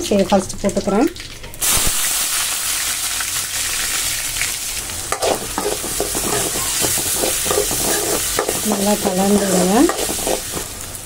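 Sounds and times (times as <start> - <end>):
onion sizzling in hot oil: 0.0 - 11.0
metal spoon scraping pan: 5.1 - 10.7.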